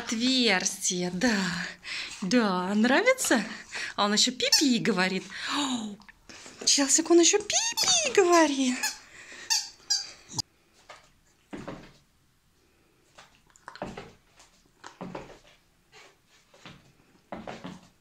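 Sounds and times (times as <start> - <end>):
squeaky dog ball squeaking: 7.6 - 10.4.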